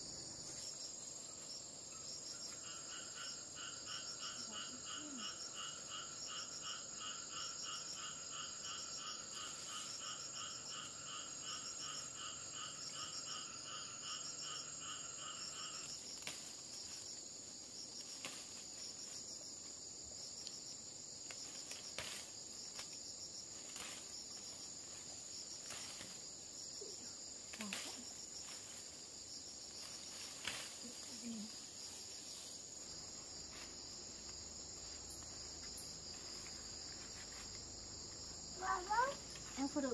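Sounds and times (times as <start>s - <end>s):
insects droning high-pitched: 0.0s - 39.9s
pulsed insect call: 0.0s - 39.9s
leafy stems snapping: 16.2s - 16.6s, 21.2s - 23.0s, 30.2s - 31.1s.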